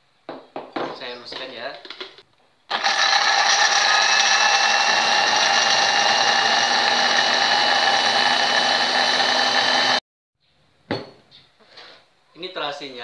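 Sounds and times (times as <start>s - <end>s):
electric food chopper whining: 2.7s - 10.0s.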